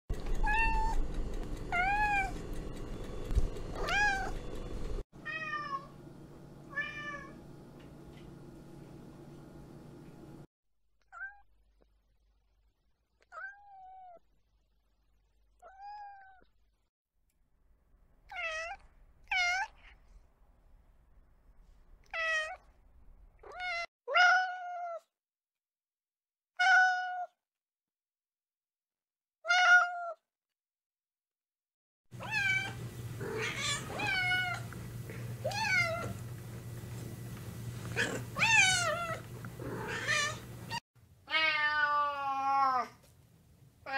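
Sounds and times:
cat meowing: 0.2s - 1.0s, 3.7s - 4.4s, 29.5s - 30.2s, 32.2s - 34.7s, 35.4s - 36.2s, 37.9s - 43.0s.

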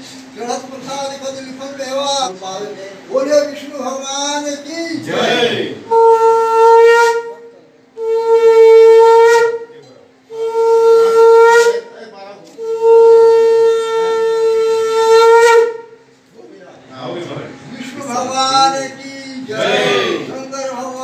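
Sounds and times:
conch shell blasts: 5.8s - 16.1s.

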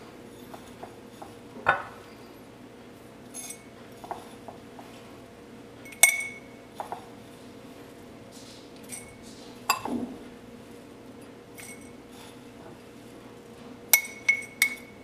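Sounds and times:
metal spoon clinking on glass: 3.4s - 3.7s, 5.9s - 6.5s, 13.9s - 15.0s.

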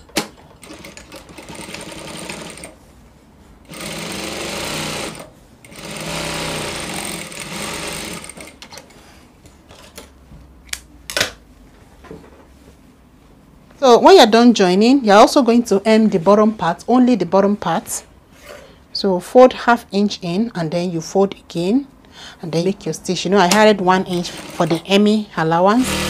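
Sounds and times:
sewing machine running: 0.6s - 2.8s, 3.7s - 8.6s, 24.1s - 24.8s, 25.8s - 26.0s.

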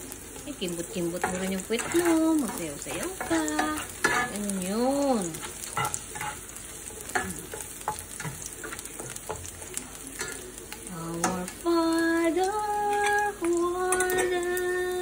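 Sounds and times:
garlic sizzling in a frying pan: 0.0s - 15.0s
spatula scraping a pan: 0.9s - 11.6s
woman singing long held notes: 10.9s - 15.0s.

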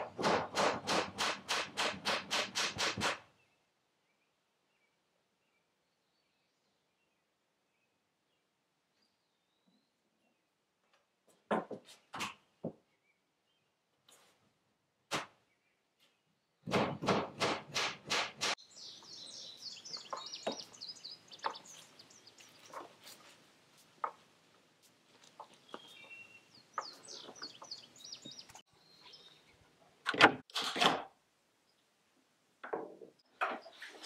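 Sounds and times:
birds chirping: 18.6s - 24.2s, 25.2s - 30.0s.

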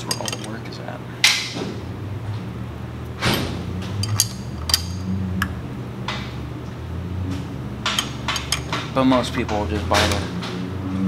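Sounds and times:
low hum: 1.7s - 8.8s
wrench clicking on metal: 4.0s - 5.0s, 7.9s - 8.8s.

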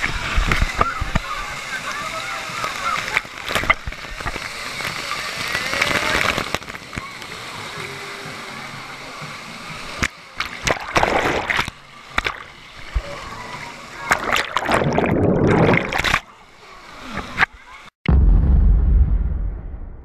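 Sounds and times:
water splashing and gushing: 0.0s - 17.8s
deep low boom: 18.1s - 20.0s.

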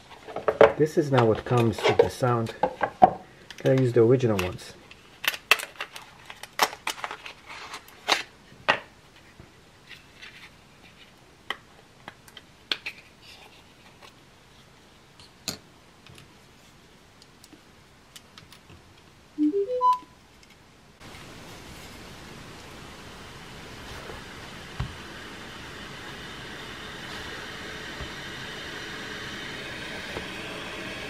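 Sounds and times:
rising electronic chime: 19.4s - 20.0s.

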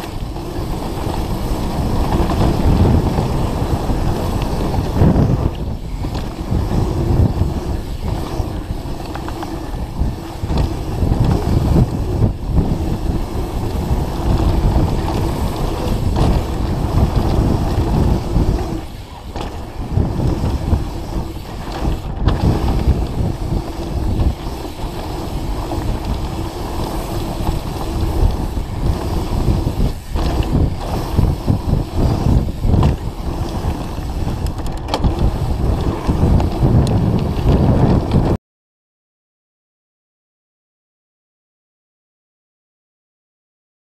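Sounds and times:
bike rattling over bumps: 0.0s - 38.4s
wind rushing over microphone: 0.0s - 38.4s.

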